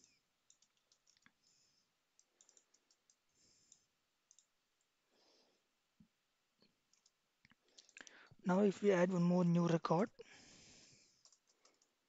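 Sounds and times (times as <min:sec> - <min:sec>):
keyboard and mouse clicks: 0:00.0 - 0:01.4, 0:02.2 - 0:04.5, 0:06.6 - 0:08.2, 0:11.2 - 0:12.0.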